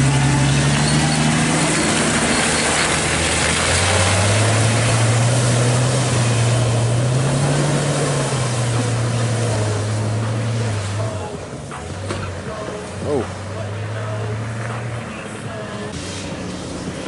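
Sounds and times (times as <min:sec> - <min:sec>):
tyres spinning in mud: 0:00.0 - 0:10.5
truck engine under load: 0:00.0 - 0:17.0.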